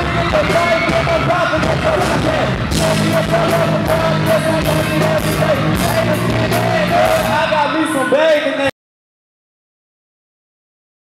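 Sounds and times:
hip-hop backing track: 0.0 - 8.2
rapper shouting into microphone: 0.0 - 8.7.

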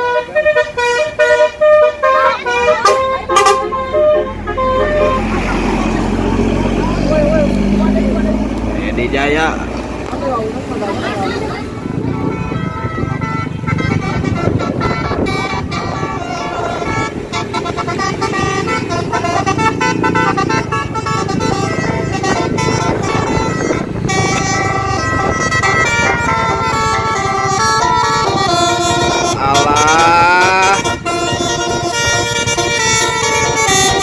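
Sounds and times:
bus musical horn melodies: 0.0 - 8.5, 11.4 - 34.0.

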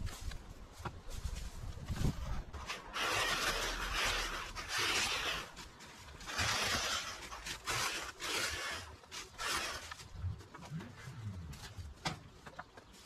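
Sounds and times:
rough scraping and tearing: 1.5 - 13.0.

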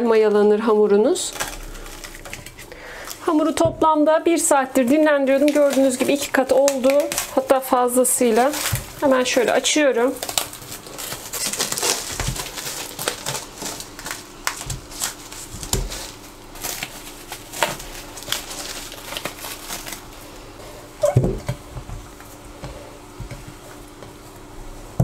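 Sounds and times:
dough being kneaded: 0.4 - 25.0
cling film crinkling: 1.1 - 3.6, 4.2 - 20.5.

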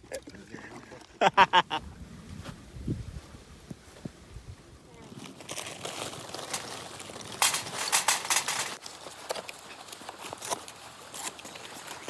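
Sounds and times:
contents clattering onto metal grill: 7.3 - 8.8.

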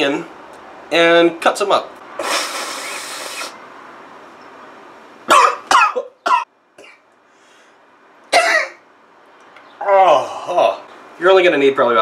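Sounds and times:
man sniffing: 2.2 - 3.6
man coughing sharply: 5.3 - 7.0, 8.3 - 8.8.

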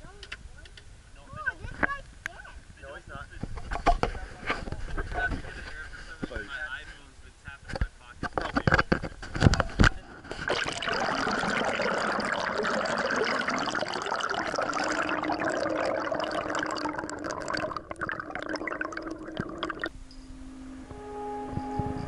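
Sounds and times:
underwater rush of bubbles: 10.5 - 19.9.

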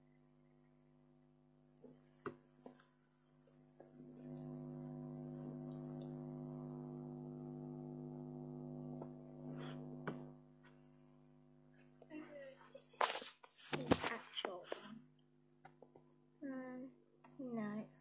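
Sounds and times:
steady low hum: 0.1 - 13.0.

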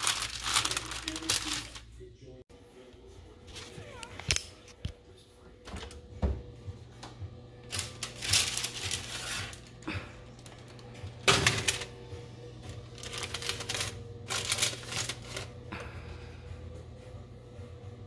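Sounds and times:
parchment paper rustling: 0.0 - 2.0, 7.6 - 15.6.

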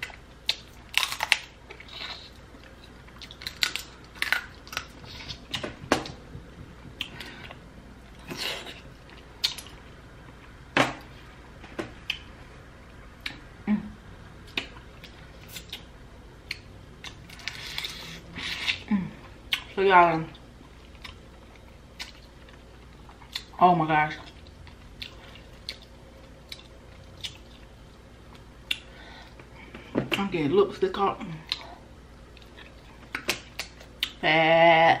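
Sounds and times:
close chewing and smacking: 0.0 - 10.5, 24.2 - 29.5.

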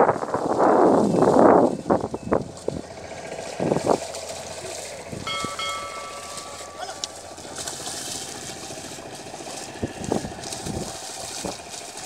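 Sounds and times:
plough splashing through mud: 0.2 - 12.0
high tone: 5.1 - 8.4.

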